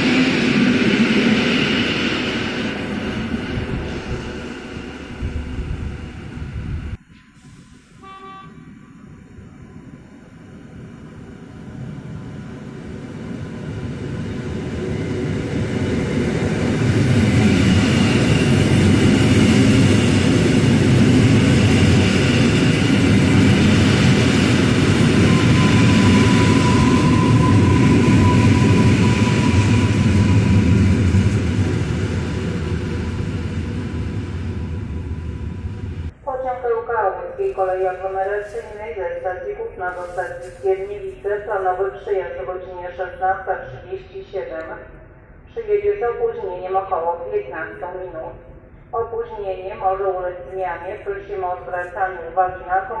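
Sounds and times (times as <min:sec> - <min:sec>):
train wheels rumbling on rails: 0:00.0 - 0:08.0, 0:11.3 - 0:36.2.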